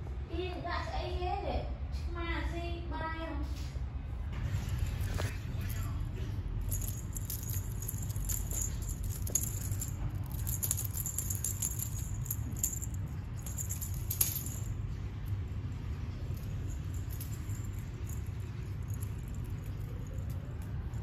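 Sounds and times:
steady low hum: 0:03.7 - 0:21.0
cat toy jingling and rattling: 0:04.5 - 0:21.0.

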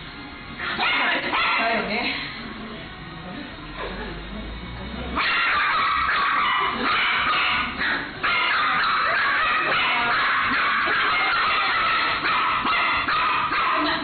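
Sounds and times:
small dogs yapping: 0:00.6 - 0:01.8, 0:05.2 - 0:14.0.

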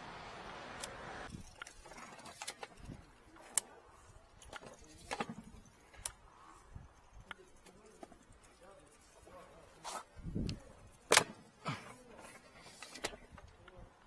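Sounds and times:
camera reel clicks and rattles: 0:01.3 - 0:03.7.

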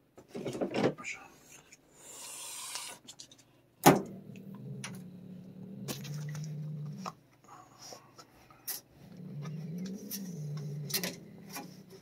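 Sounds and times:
cat growling: 0:04.1 - 0:07.2, 0:09.0 - 0:12.0.

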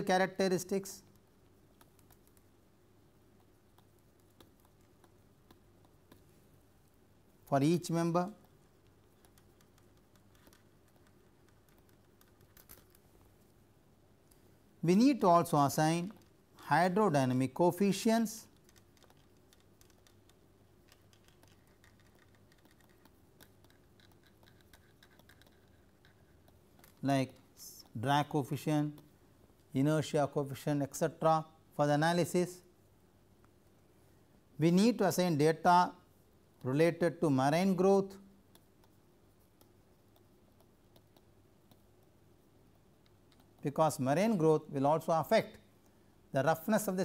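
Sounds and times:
stylus tapping on tablet screen: 0:03.3 - 0:06.4, 0:38.5 - 0:42.1
stylus scratching on pen tablet: 0:08.3 - 0:12.9, 0:21.1 - 0:26.6.

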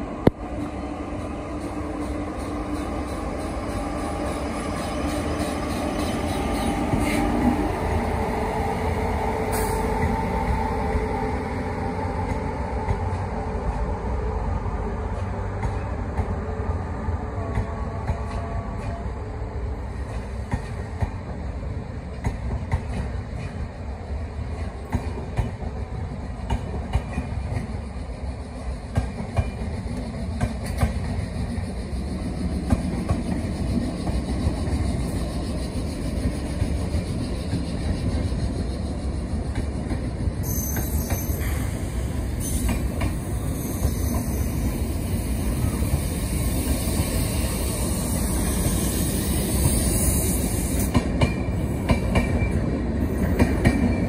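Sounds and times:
train hiss: 0:00.0 - 0:14.4, 0:26.0 - 0:54.0
train wheels rumbling and clicking: 0:00.0 - 0:54.0.

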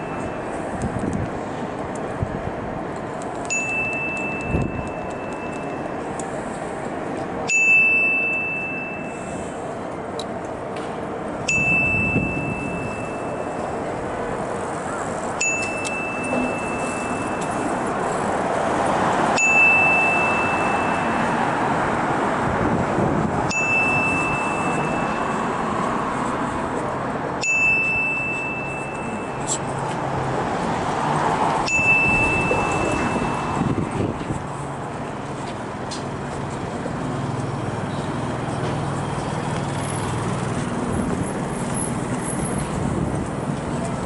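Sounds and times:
street traffic noise: 0:00.0 - 0:44.0
electronic chime dinging: 0:03.5 - 0:06.0, 0:07.5 - 0:09.4, 0:11.5 - 0:13.8, 0:15.4 - 0:17.7, 0:19.4 - 0:21.5, 0:23.5 - 0:25.6, 0:27.4 - 0:29.6, 0:31.7 - 0:33.8.

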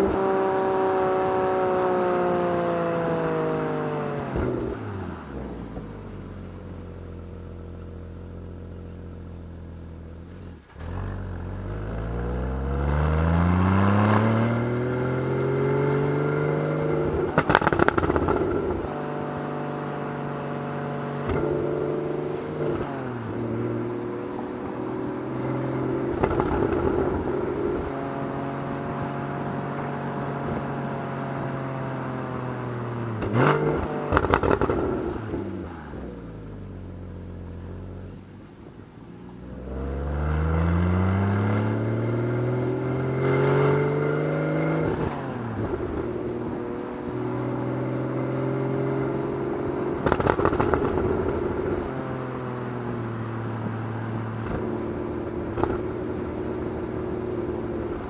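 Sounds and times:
car engine revving: 0:00.0 - 0:38.6, 0:39.3 - 0:58.0
exhaust crackles: 0:49.2 - 0:52.0.

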